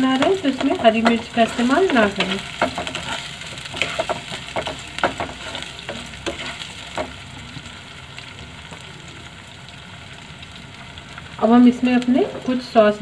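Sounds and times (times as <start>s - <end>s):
spatula stirring and scraping: 0.0s - 7.2s
vegetables sizzling in oil: 0.0s - 13.0s.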